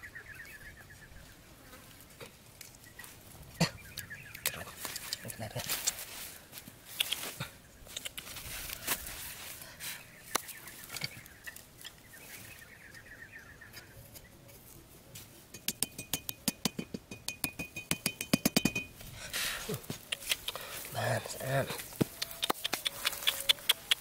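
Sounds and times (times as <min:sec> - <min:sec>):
faint handling ticks: 0:06.9 - 0:09.2, 0:19.9 - 0:24.0
hatchet tapping wooden peg: 0:15.6 - 0:18.9.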